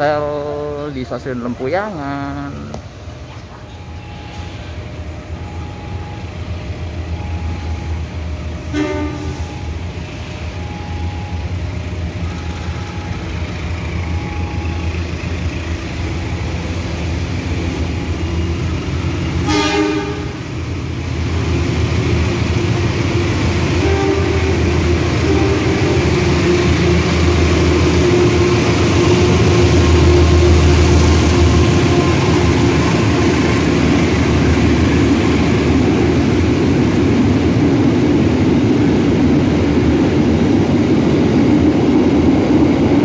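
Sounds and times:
locomotive engine rumble: 0.0 - 43.0
train horn blasts: 8.6 - 9.6, 19.4 - 20.4, 23.7 - 33.4.

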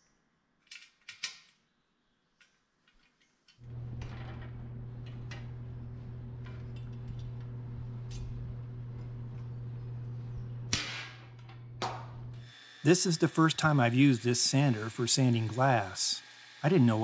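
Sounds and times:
steady low hum: 3.6 - 15.9.

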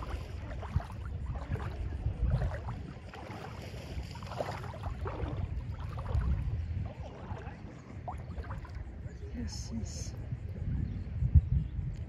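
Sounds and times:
small splashy crackles: 0.0 - 8.8
water lapping at shoreline: 0.0 - 11.1
low uneven rumble: 0.0 - 12.0.

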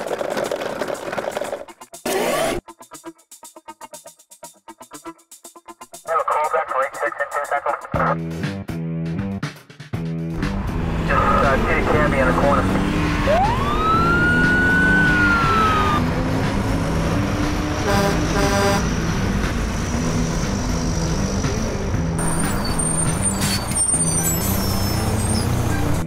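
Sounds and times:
background music with low notes: 1.6 - 26.0
siren wail: 13.0 - 16.1.

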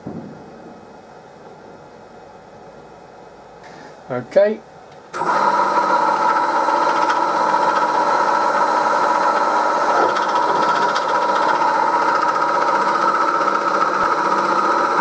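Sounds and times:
milling machine drilling metal: 5.2 - 15.0.

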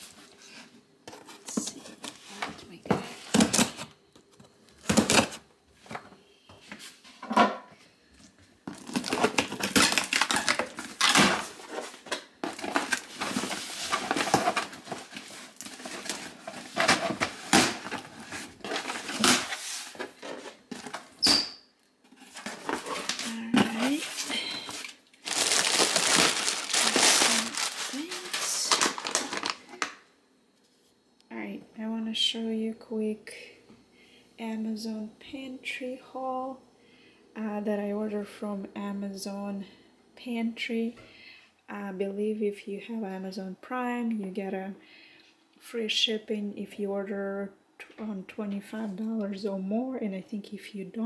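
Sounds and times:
plastic packing crinkling: 8.6 - 21.2, 22.2 - 30.0
cardboard flaps rustling: 8.7 - 21.2, 22.1 - 29.6.

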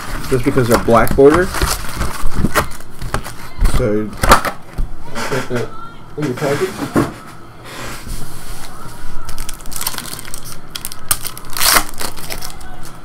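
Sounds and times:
foil wrapper crinkling and tearing: 0.0 - 4.4, 9.2 - 13.0.

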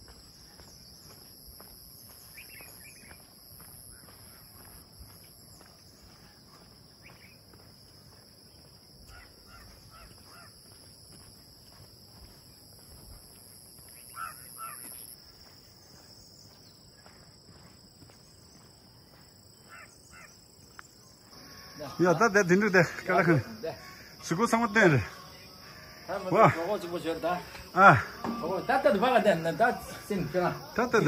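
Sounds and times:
insects droning: 0.0 - 31.0
higher insect drone: 7.0 - 31.0.

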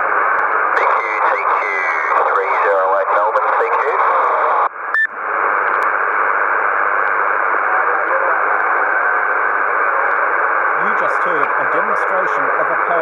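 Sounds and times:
radio static hiss: 0.0 - 13.0
voice over radio: 0.7 - 4.7, 7.4 - 10.2, 10.8 - 13.0.

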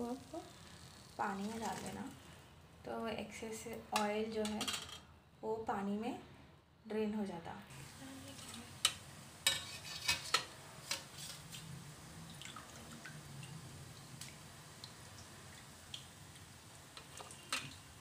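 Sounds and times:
water dripping: 11.5 - 18.0.

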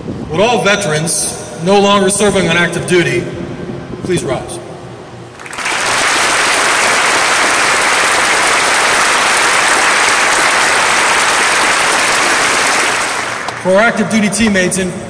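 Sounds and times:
large audience applauding: 5.4 - 13.7.

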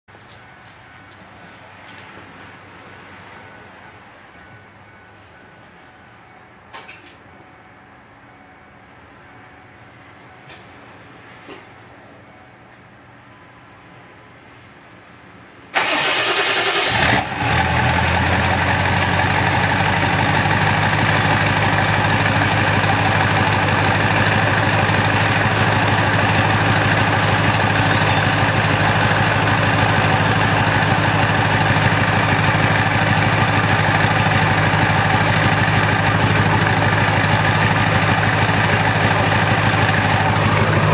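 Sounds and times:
diesel engine cranking and idling: 15.7 - 40.9.

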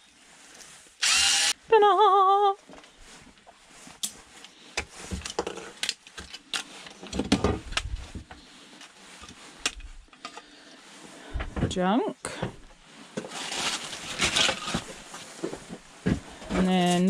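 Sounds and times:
electric screwdriver motor whirring: 1.0 - 1.6.

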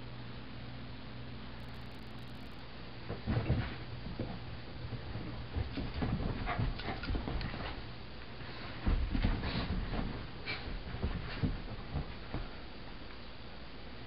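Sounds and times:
dogs scuffling: 3.1 - 12.7.

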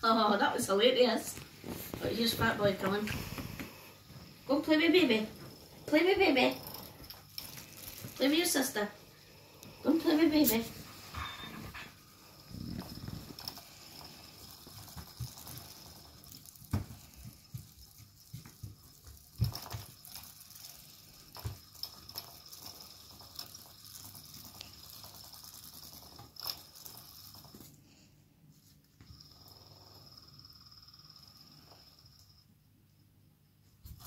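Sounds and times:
faint high whine: 8.9 - 15.6.

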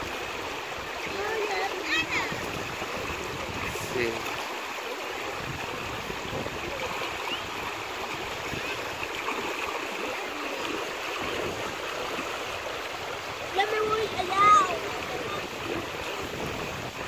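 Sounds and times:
river rushing over stones: 0.0 - 17.0.

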